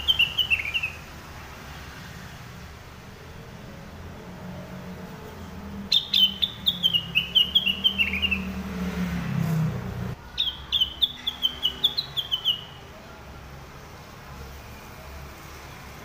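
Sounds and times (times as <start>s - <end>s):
bird chirping: 0.0s - 1.1s, 5.9s - 8.9s, 10.3s - 12.9s.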